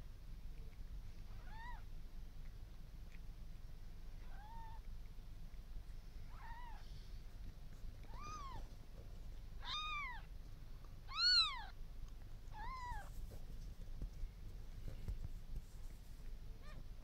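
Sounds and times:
kitten mewing: 4.2s - 4.8s, 6.3s - 6.9s, 8.0s - 8.7s, 9.6s - 10.3s, 11.0s - 11.8s, 12.5s - 13.1s.

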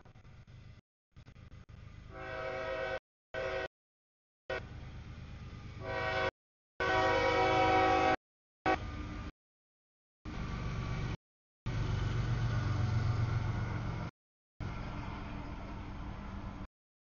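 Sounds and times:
low rumble of train: 0.0s - 3.7s, 4.5s - 9.3s, 10.3s - 16.7s
train air horn blasts: 2.1s - 3.7s, 5.8s - 8.9s.

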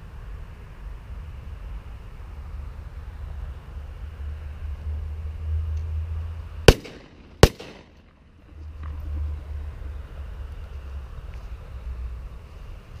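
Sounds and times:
shotgun shots: 6.7s - 8.2s.

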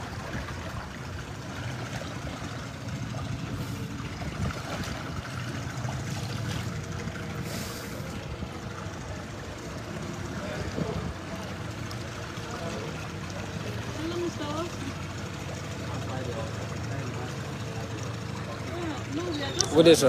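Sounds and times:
water hissing past boat: 0.0s - 8.9s
boat motor running: 0.0s - 20.0s.

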